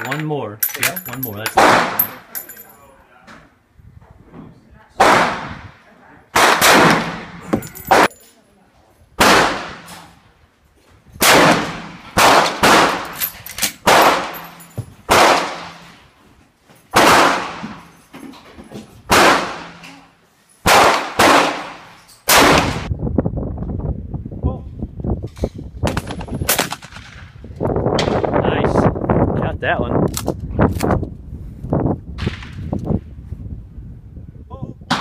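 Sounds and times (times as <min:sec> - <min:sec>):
rifle shots echoing: 0:01.6 - 0:02.2, 0:06.4 - 0:08.1, 0:09.2 - 0:09.9, 0:11.2 - 0:13.2, 0:13.8 - 0:15.9, 0:17.0 - 0:17.8, 0:19.1 - 0:19.8, 0:20.6 - 0:22.9.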